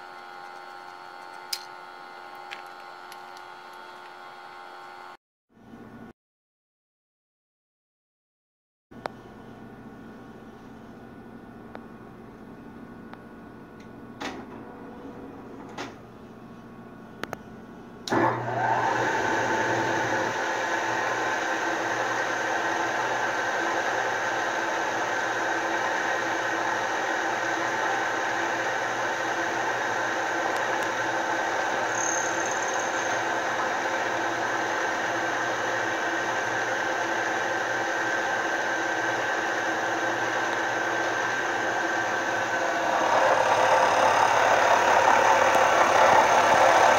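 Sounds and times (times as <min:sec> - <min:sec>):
mill spindle motor running: 0:00.0 - 0:05.2, 0:18.0 - 0:46.9.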